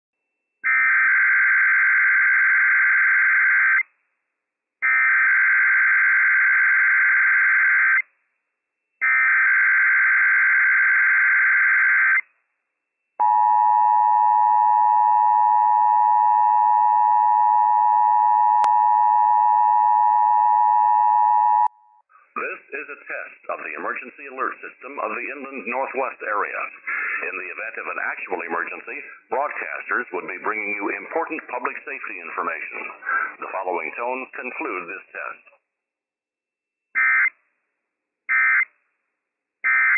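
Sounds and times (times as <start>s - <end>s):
steady attention tone: 12.7s - 23.1s.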